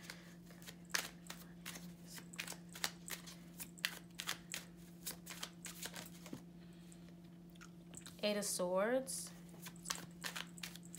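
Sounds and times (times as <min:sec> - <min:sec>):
cards being shuffled: 0:00.0 - 0:06.4, 0:09.5 - 0:10.9
faint steady hum: 0:00.0 - 0:10.9.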